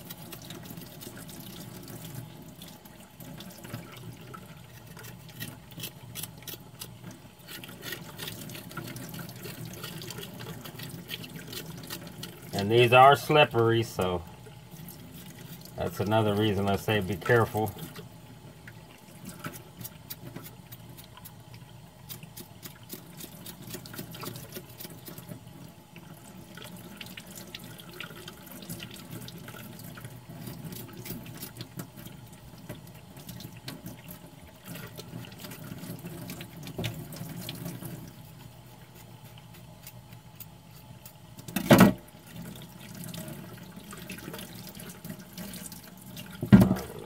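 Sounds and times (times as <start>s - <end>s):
tap running into steel sink: 46.4s - 47.0s.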